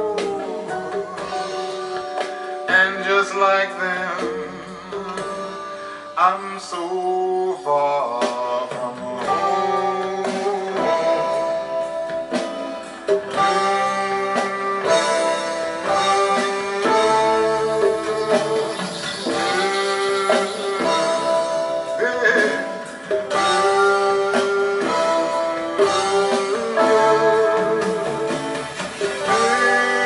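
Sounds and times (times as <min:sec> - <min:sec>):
song with plucked strings on speakers: 0:00.0 - 0:30.0.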